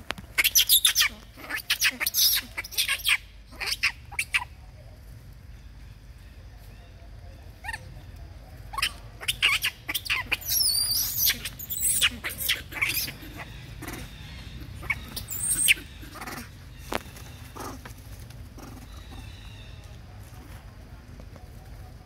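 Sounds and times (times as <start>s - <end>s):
macaques squealing and screeching: 0.4s - 4.6s, 7.6s - 7.9s, 8.7s - 17.9s, 18.6s - 19.6s.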